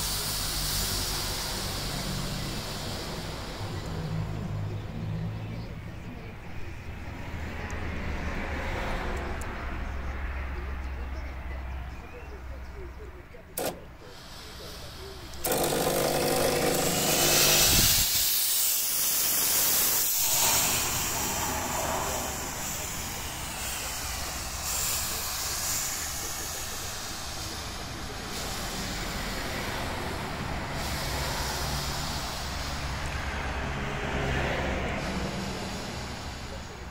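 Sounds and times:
fog machine hissing: 0.0s - 8.5s, 11.4s - 36.9s
low hum: 18.7s - 26.4s.

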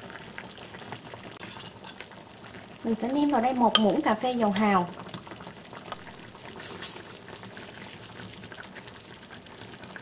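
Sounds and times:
liquid simmering and bubbling: 0.0s - 10.0s
metal spoon scraping pot: 1.4s - 2.0s.

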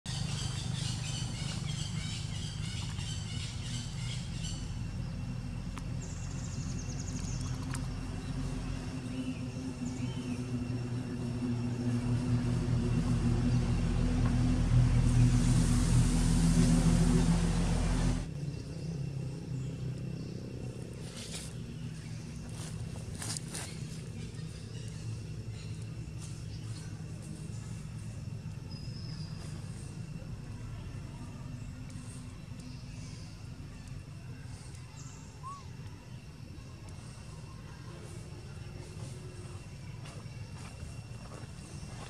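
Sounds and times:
vehicle engine running: 0.0s - 42.0s.

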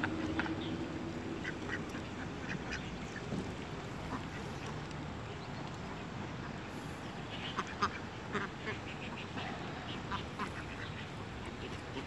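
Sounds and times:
steady background noise: 0.0s - 12.0s
ducks quacking: 7.4s - 12.0s.

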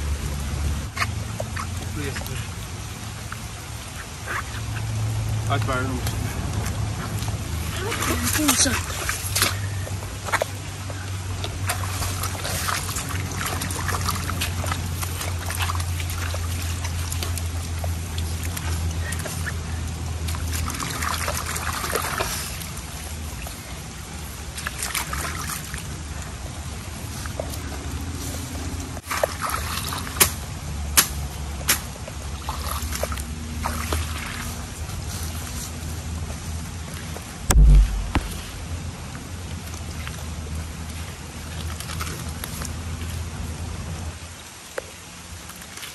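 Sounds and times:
trickling water: 0.0s - 45.9s
machete chopping wet ground: 29.9s - 32.0s, 37.5s - 38.5s
steady low rumble: 37.5s - 39.2s.

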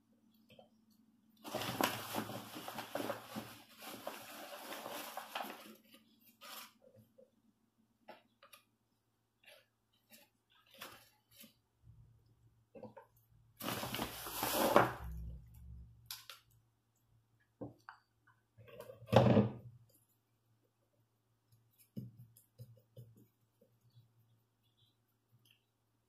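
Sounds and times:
rustling scrape: 1.4s - 6.8s, 13.6s - 15.2s
faint low hum: 15.0s - 18.9s.

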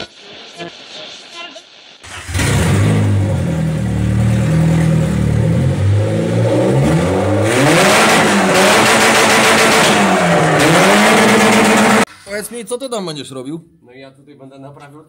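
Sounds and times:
car engine revving: 2.0s - 12.1s.

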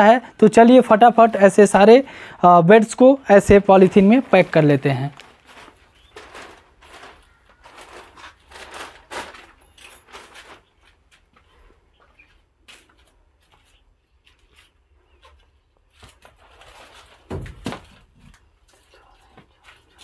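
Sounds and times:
plastic sheeting rustling: 2.7s - 20.0s.

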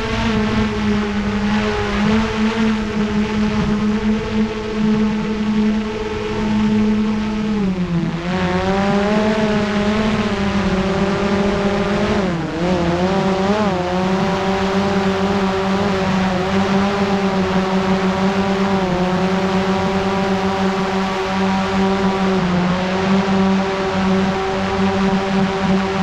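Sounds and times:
drone propellers humming: 0.0s - 26.0s.

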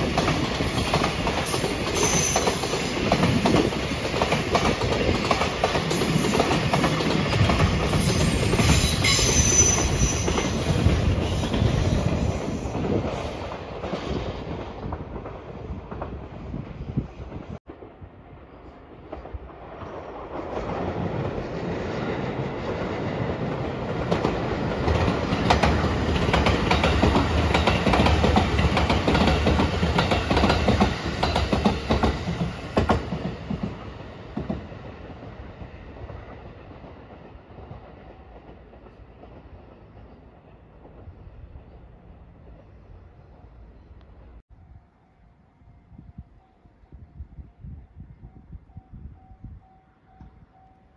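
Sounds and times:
train wheels clacking over rails: 0.0s - 16.3s, 19.0s - 40.2s
electric train passing: 0.0s - 50.9s.

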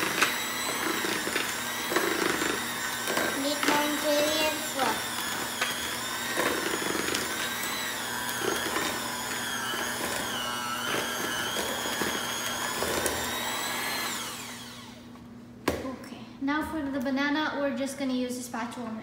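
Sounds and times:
electric hand mixer whining: 0.0s - 15.1s.

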